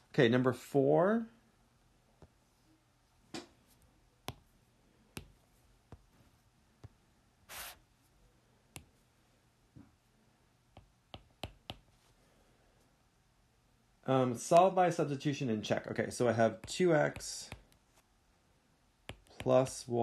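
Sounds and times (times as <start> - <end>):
pen clicks and taps: 10.8 - 11.9.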